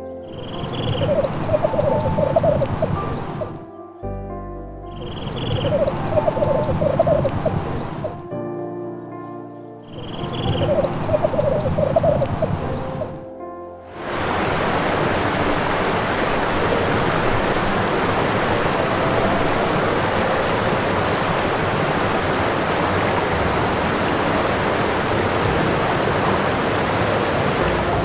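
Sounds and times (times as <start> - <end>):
steady rushing noise: 13.9 - 28.0.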